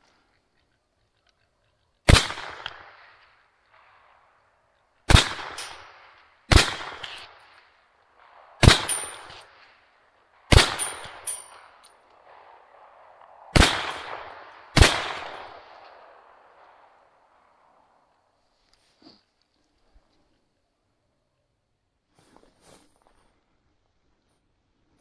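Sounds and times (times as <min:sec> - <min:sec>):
rifle shots echoing: 0:02.0 - 0:18.0.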